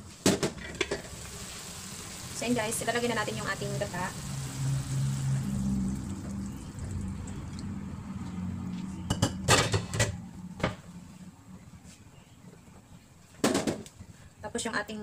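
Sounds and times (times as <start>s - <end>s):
liquid pouring into frying pan: 0.6s - 7.6s
low steady hum: 0.6s - 13.2s.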